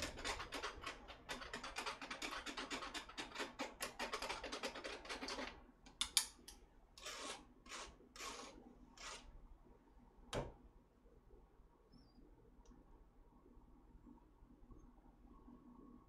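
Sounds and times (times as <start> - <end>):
chopsticks scraping metal strainer: 7.0 - 9.3.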